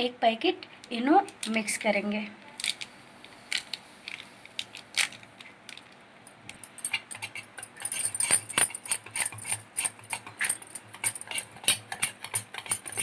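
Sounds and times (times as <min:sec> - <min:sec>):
spoon scraping metal bowl: 0:06.8 - 0:13.0.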